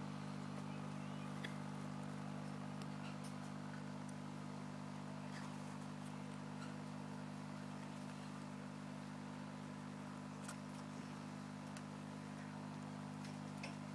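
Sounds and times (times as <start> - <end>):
low mechanical hum: 0.0 - 13.9.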